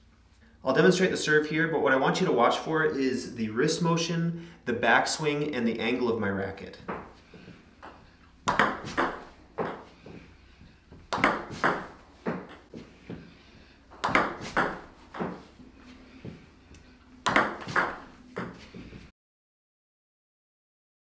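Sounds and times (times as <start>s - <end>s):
ball bouncing on table: 7.8s - 9.9s, 11.1s - 12.6s, 14.0s - 15.4s, 17.2s - 18.6s
racket striking ball: 7.8s - 10.2s, 11.1s - 13.3s, 13.9s - 15.5s, 17.2s - 18.8s.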